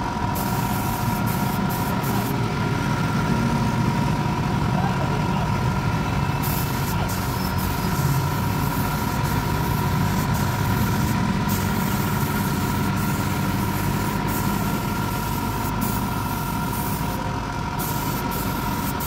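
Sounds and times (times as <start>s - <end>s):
air compressor running: 0.0s - 19.0s
spray gun hissing: 0.3s - 2.4s, 6.4s - 19.0s.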